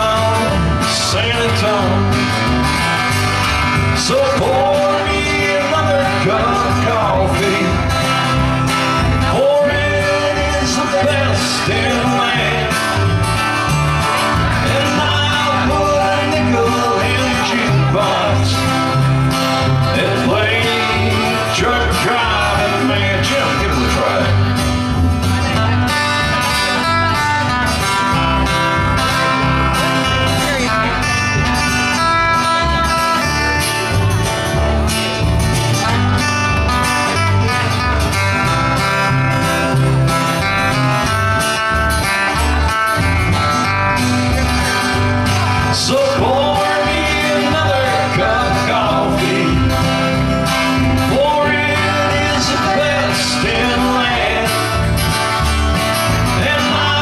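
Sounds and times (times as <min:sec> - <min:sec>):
acoustic guitars: 0:00.0 - 0:57.0
upright bass: 0:00.0 - 0:57.0
person singing: 0:45.6 - 0:50.2, 0:50.8 - 0:54.9, 0:56.3 - 0:57.0.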